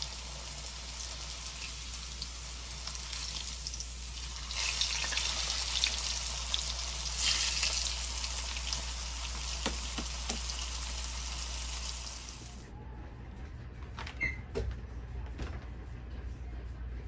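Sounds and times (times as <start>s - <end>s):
pork chop sizzling in hot oil: 0.0s - 12.4s.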